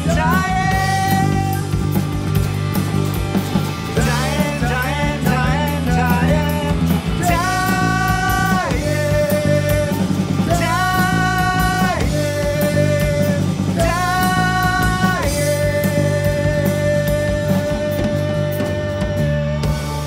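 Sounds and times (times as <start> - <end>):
man singing: 0.0 - 2.0, 3.9 - 20.0
rock band playing: 0.0 - 20.0.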